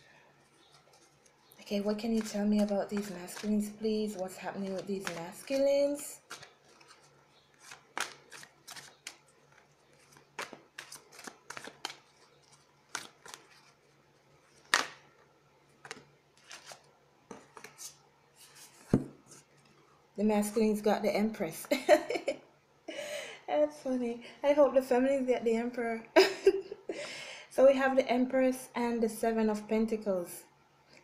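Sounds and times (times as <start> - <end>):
cards shuffling with flicks and snaps: 0.6 - 13.8, 15.8 - 19.4.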